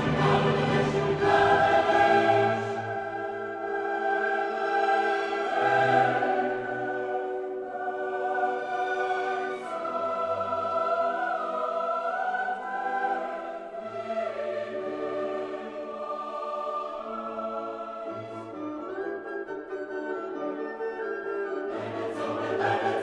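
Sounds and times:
choir singing long notes: 0.0 - 20.9, 21.5 - 23.0.

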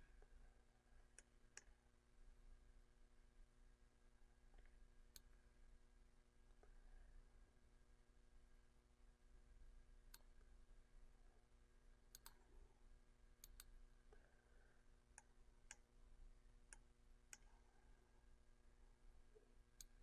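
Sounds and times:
low steady hum: 0.0 - 20.0
faint computer mouse clicks: 1.2 - 1.7, 10.1 - 10.3, 12.1 - 12.4, 13.4 - 14.3, 16.7 - 17.5, 19.8 - 20.0.

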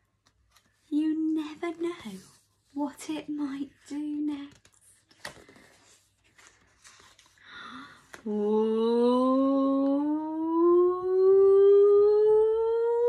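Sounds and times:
book pages rustling and tapping: 0.1 - 7.4
woman humming rising note: 8.2 - 13.0.

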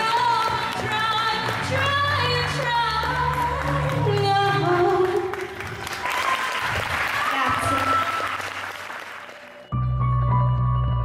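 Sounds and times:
woman singing into a microphone: 0.0 - 5.5.

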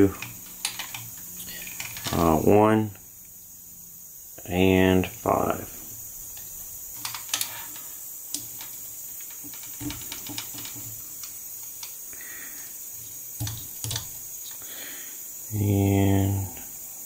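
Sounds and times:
faint steady hiss: 0.0 - 17.0
wire clicking and tapping: 6.3 - 12.0, 13.1 - 14.6.

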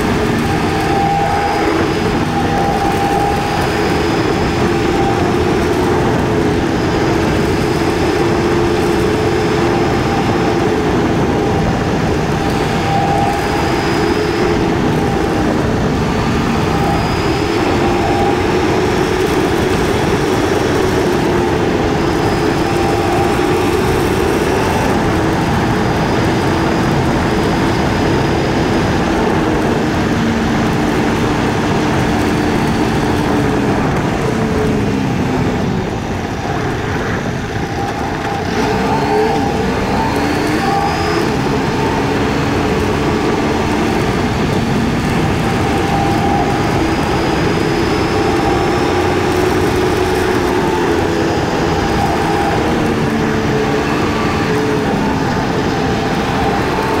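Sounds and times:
motorcycle engine cruising: 0.0 - 57.0
wind and road noise: 0.0 - 57.0.

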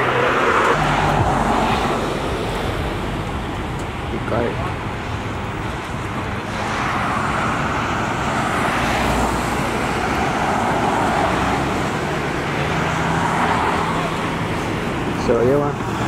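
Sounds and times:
cars driving past: 0.0 - 16.0
road traffic passing: 0.0 - 16.0.

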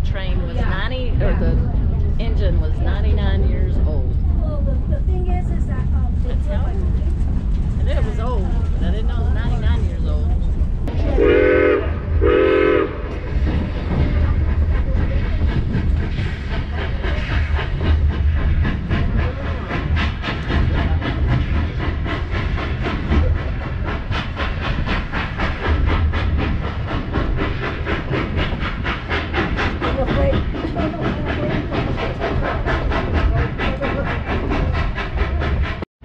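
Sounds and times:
quick regular train beat: 0.0 - 35.9
steam train rumble: 0.0 - 35.9
steam locomotive whistle: 11.2 - 13.0.

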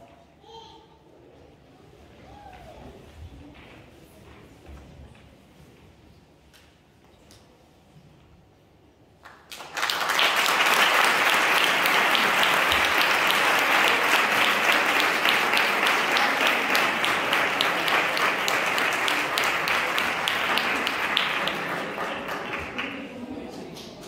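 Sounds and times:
audience applauding: 9.2 - 24.0.

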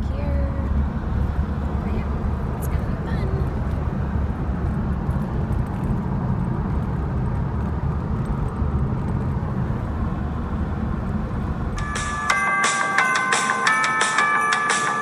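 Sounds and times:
road and engine rumble: 0.0 - 15.0
electronic music with beeping notes: 11.8 - 15.0.

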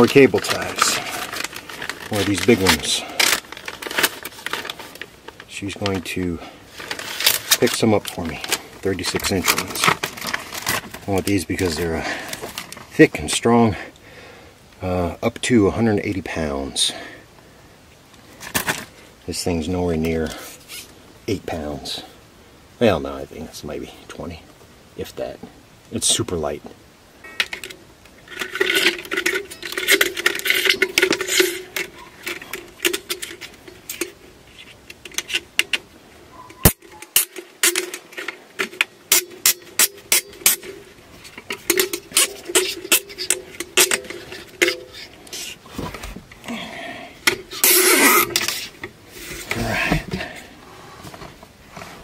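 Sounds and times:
handling noise: 0.0 - 13.5, 27.3 - 52.0.

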